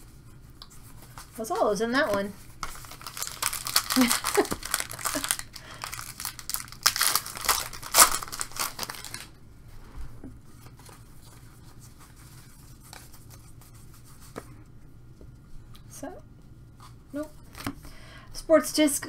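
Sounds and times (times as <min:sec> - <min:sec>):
cards being handled: 0:00.5 - 0:09.3
plastic wrapper tearing and crinkling: 0:02.6 - 0:09.4.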